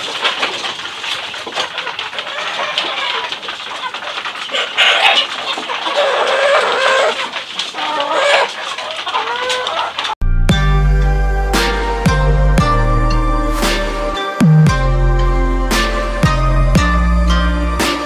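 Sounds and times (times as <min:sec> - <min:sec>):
beaks pecking feed: 0:00.0 - 0:10.2
chickens clucking and calling: 0:00.0 - 0:10.2
music: 0:10.2 - 0:18.0.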